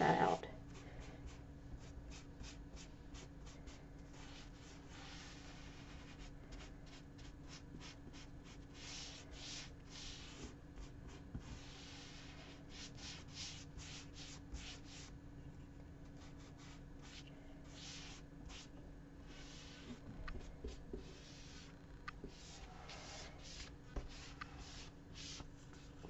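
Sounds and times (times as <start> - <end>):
faint steady hum: 0.0 - 26.0
paint brush swishing: 2.1 - 10.5, 11.1 - 15.1, 16.2 - 20.4, 21.0 - 21.7, 22.3 - 26.0.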